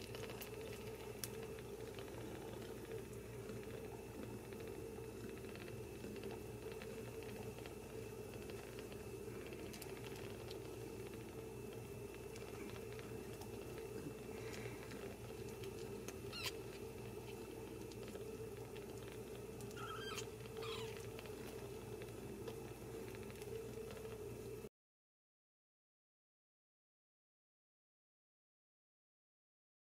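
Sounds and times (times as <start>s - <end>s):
kittens suckling clicks: 0.0s - 24.3s
steady low hum: 0.0s - 24.7s
kitten squeaks: 16.3s - 16.6s, 19.7s - 21.0s.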